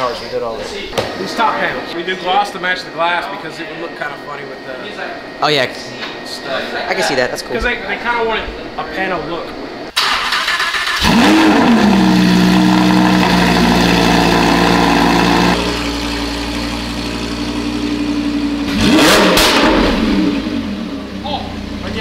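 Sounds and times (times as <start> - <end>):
sports car engine idling: 11.0 - 22.0.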